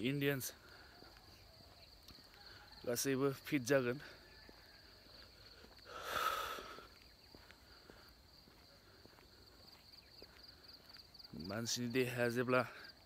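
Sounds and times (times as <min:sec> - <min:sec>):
footsteps on paved path: 0:00.0 - 0:13.0
insects chirring: 0:00.0 - 0:13.0.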